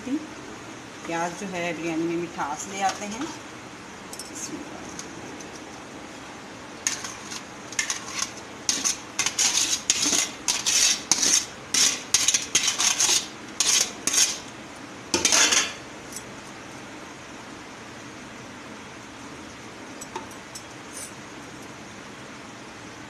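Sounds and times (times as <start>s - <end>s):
dish scraping metal pot: 6.8s - 14.4s, 15.2s - 15.8s.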